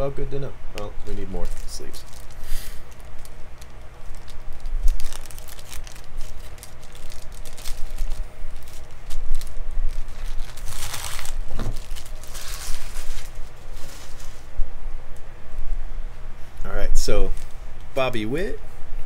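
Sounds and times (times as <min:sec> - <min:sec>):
plastic packet crinkling: 0:01.0 - 0:14.5.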